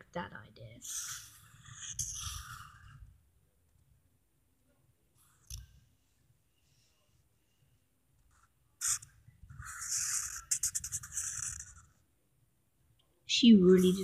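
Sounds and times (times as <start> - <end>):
marker pen scratching on paper: 0.8 - 3.1, 8.3 - 12.0.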